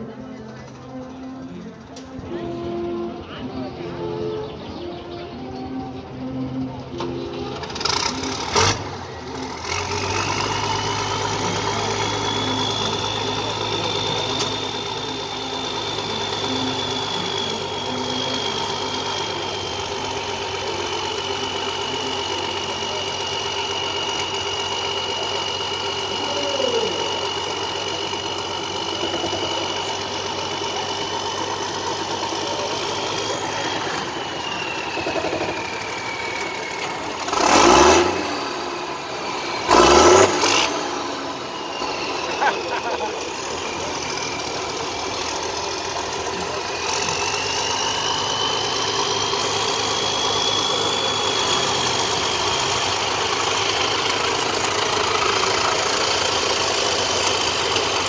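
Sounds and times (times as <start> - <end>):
diesel tractor engine running: 0.0 - 58.0
high whistle: 30.9 - 44.8, 45.6 - 58.0.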